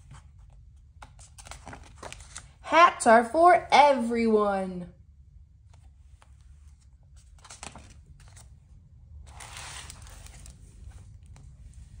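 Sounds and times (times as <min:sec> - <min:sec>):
paper pages rustling: 0:00.0 - 0:02.6, 0:05.7 - 0:08.6, 0:09.3 - 0:12.0
book closing swish: 0:09.3 - 0:10.5.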